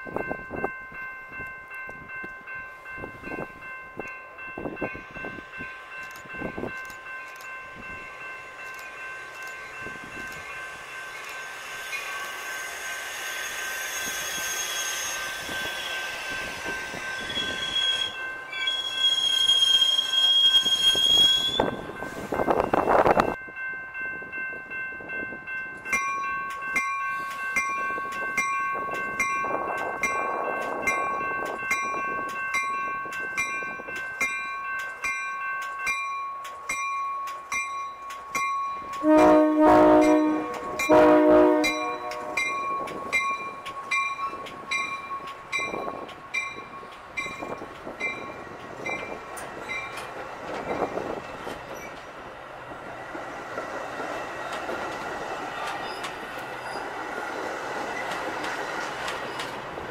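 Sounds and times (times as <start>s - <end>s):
loud train rumble: 0.0s - 23.4s, 24.2s - 59.9s
crossing warning bells ringing: 0.0s - 59.9s
train brakes squealing: 11.2s - 23.0s, 48.8s - 52.0s, 55.5s - 57.0s.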